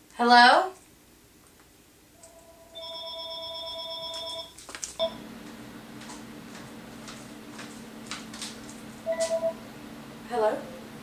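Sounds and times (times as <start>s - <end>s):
low hum with faint ticks: 0.0s - 9.6s
electronic telephone ring: 2.3s - 5.2s.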